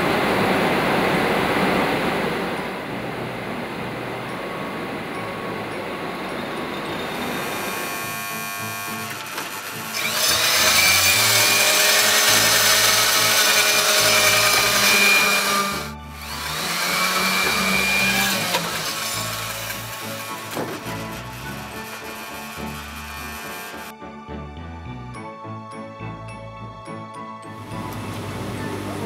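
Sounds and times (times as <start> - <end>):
electric cloth cutter whine: 6.9 - 23.9, 27.6 - 29.0.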